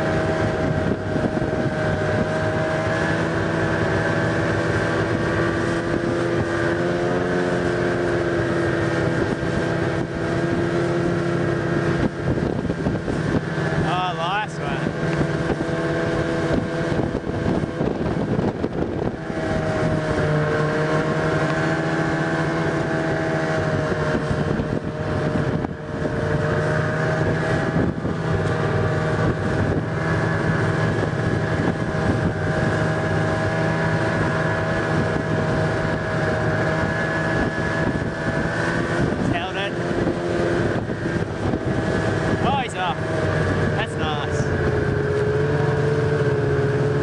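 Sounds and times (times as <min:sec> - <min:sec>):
snowmobile engine running: 0:00.0 - 0:47.0
wind buffeting microphone: 0:00.0 - 0:47.0.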